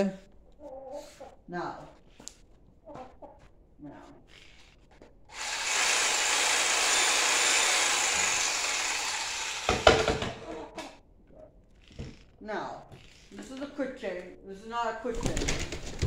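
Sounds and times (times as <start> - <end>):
reciprocating saw cutting board: 4.3 - 10.9
loud knocks: 9.6 - 10.4.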